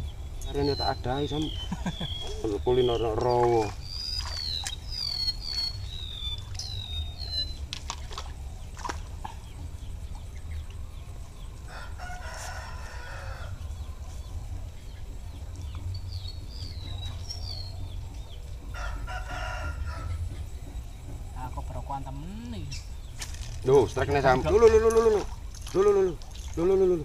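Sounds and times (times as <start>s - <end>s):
low steady rumble: 0.0s - 26.4s
small birds chirping: 0.0s - 27.0s
rooster crowing: 11.7s - 14.0s, 18.7s - 20.3s.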